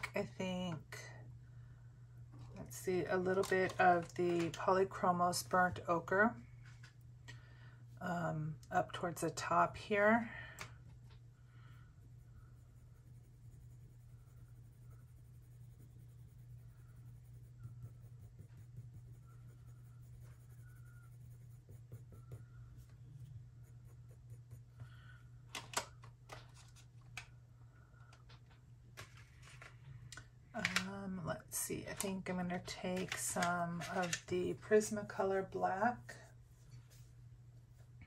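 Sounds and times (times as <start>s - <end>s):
low steady hum: 0.0s - 38.0s
pencil scratching on paper: 12.0s - 24.8s.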